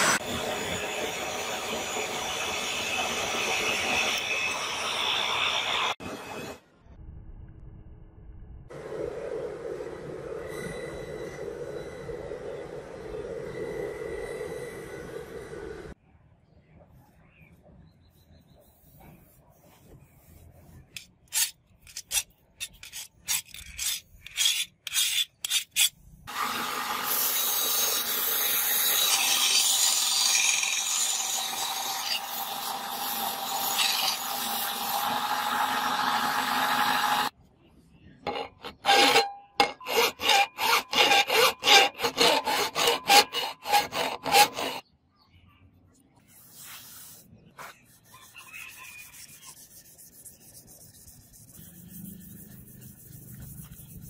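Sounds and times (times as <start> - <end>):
hand-sanding strokes on steel: 18.7 - 37.3, 38.3 - 44.8, 46.3 - 54.0
belt sander grinding: 26.3 - 37.3, 38.3 - 44.8.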